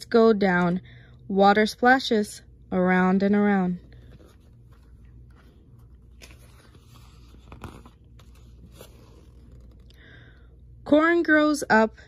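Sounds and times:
low room hum: 0.0 - 12.0
book page turning: 3.9 - 9.9.

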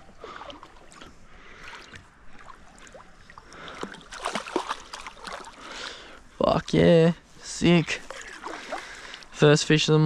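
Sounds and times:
water splashing: 0.0 - 5.9, 7.9 - 9.4.

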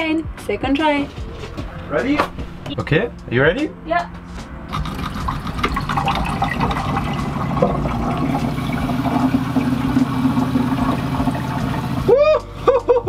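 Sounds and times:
water running into a steel sink: 4.7 - 12.1.

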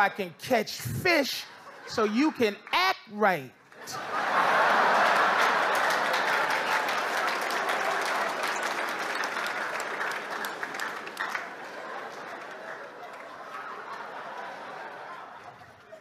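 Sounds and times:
audience applauding: 3.8 - 16.0.

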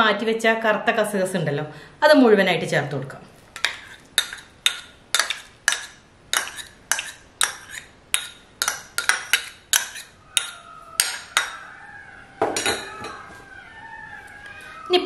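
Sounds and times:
spoon clinking on ceramic bowl: 12.4 - 13.2.

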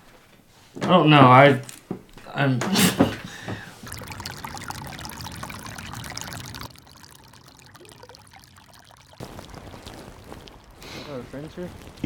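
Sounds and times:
stream trickling over pebbles: 3.1 - 12.0.

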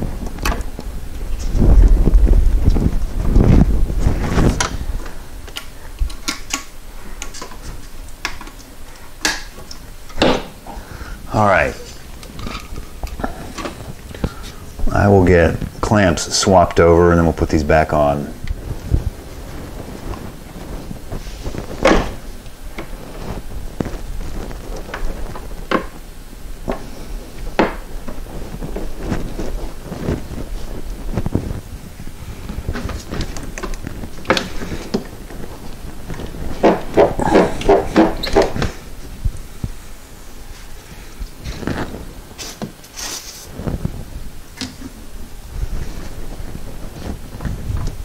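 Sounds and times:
rubbing on rubber hoses: 26.7 - 48.0.

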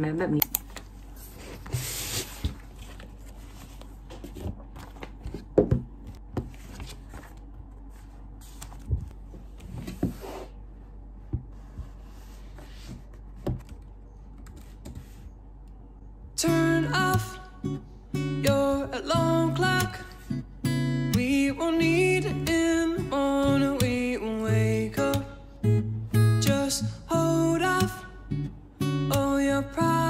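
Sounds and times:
paper rustling: 1.1 - 5.5, 6.4 - 10.5.

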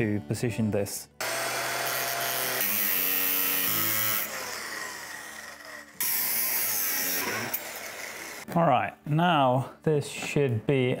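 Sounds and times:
power tool cutting steel: 1.2 - 8.5.

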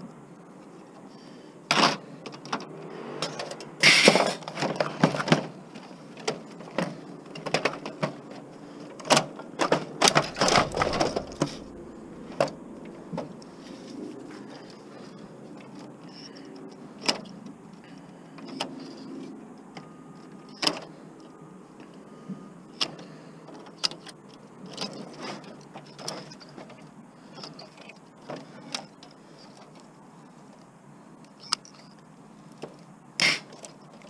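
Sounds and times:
scraping and rattling: 9.7 - 15.0.

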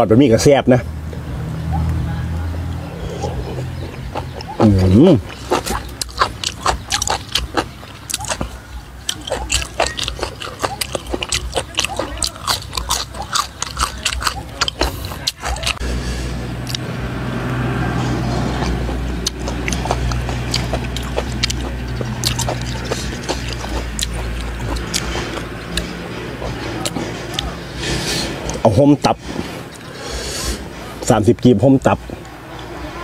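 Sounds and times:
steady low hum: 0.8 - 31.4
wet chewing and mouth smacks: 2.7 - 15.9, 16.6 - 16.9, 18.6 - 28.6, 29.3 - 31.1.

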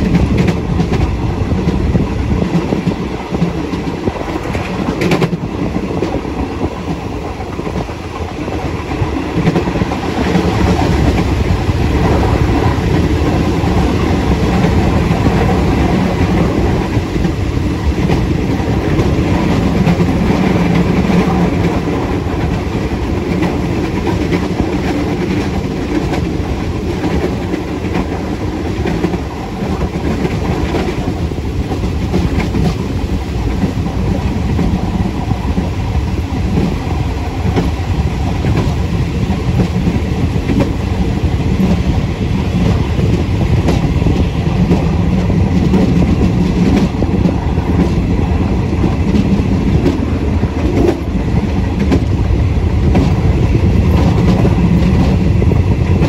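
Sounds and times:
train wheel and track rumble: 0.0 - 56.0
wheels clickety-clack over rails: 0.0 - 56.0.

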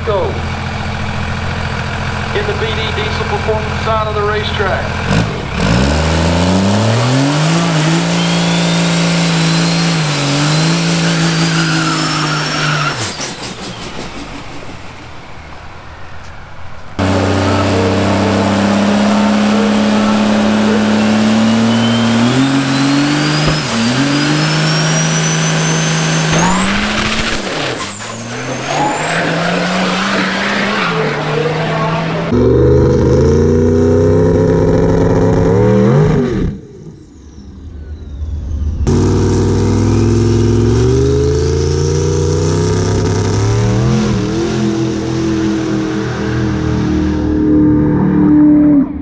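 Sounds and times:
diesel truck engine revving: 0.0 - 15.9, 16.9 - 49.0
turbocharger whistle: 6.8 - 14.4, 17.0 - 34.4.

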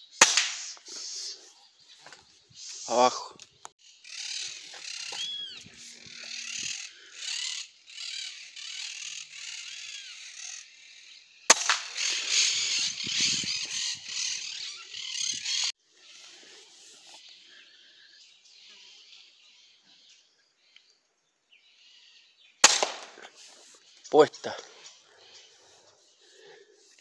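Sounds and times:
countryside ambience hiss: 0.0 - 13.1, 14.1 - 27.0
birds chirping: 0.0 - 27.0.

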